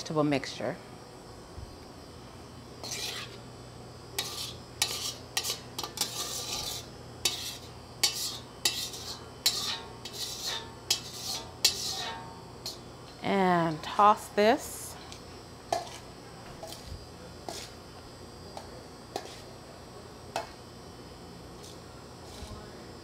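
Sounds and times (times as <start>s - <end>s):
utensil scraping metal wok: 2.8s - 3.4s, 4.1s - 12.8s, 15.7s - 17.8s, 19.1s - 19.6s, 21.6s - 22.6s.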